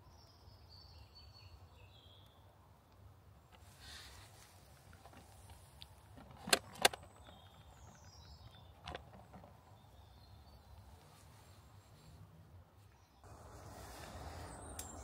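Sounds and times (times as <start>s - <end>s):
faint high bird chirp: 12.8s - 15.0s.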